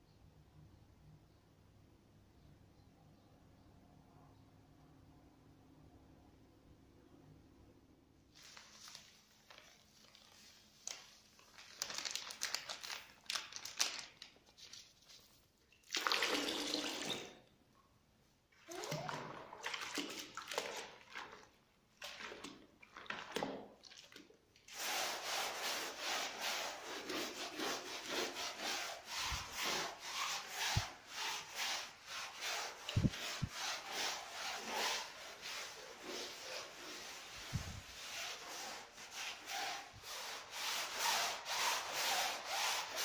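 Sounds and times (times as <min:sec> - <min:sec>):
brush scrubbing a plastic mat: 0:24.6 - 0:43.0.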